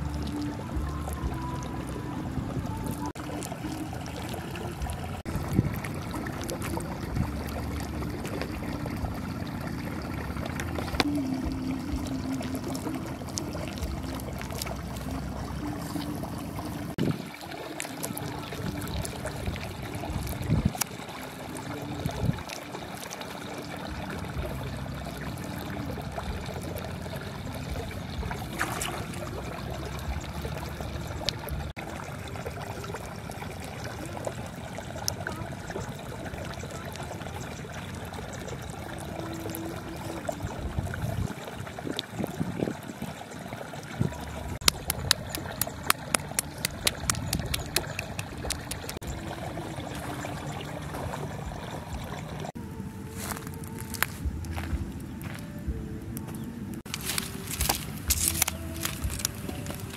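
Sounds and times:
wet clay squelching and slapping: 10.7s - 17.1s, 28.3s - 31.7s, 44.6s - 49.0s, 56.8s - 59.9s.

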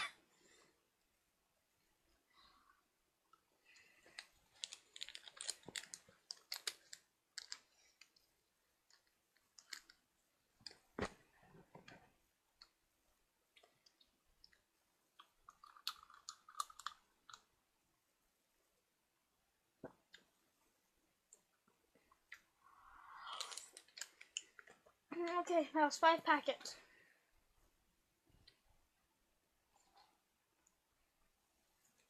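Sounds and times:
faint clicks and crackles: 2.1s - 12.8s, 13.5s - 17.6s, 21.2s - 25.7s.

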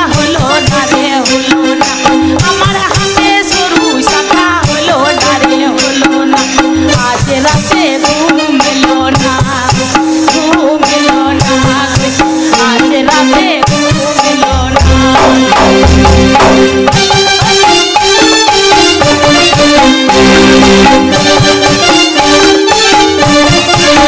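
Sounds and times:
rattling percussion: 0.0s - 24.0s
melodic accompaniment: 13.7s - 24.0s.

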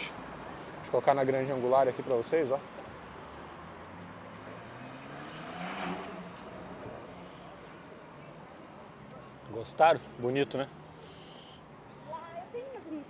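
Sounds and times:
heavy vehicle engine passing: 3.2s - 8.5s.

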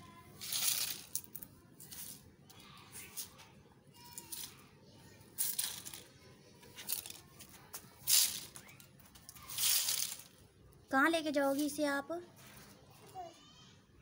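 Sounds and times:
broom sweeping concrete floor: 1.8s - 2.2s, 8.0s - 8.6s, 9.5s - 10.3s.

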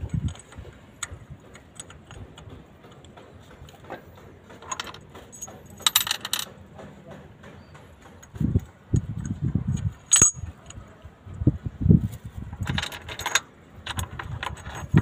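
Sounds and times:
metal parts and tools clinking: 0.0s - 6.8s, 9.0s - 10.9s, 12.4s - 15.0s
jangling metal rattle: 4.5s - 6.6s, 10.0s - 10.6s, 12.5s - 15.0s.

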